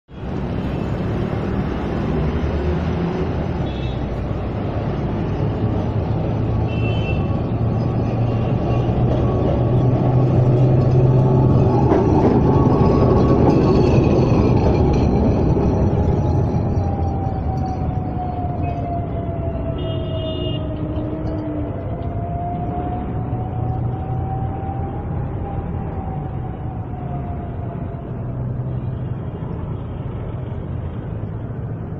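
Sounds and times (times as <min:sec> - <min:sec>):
electric tram rumbling past: 0:00.1 - 0:31.9
wavering whine: 0:05.7 - 0:28.8.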